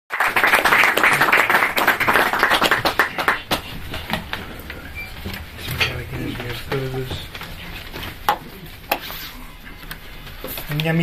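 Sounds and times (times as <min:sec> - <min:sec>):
audience applauding: 0:00.1 - 0:04.4.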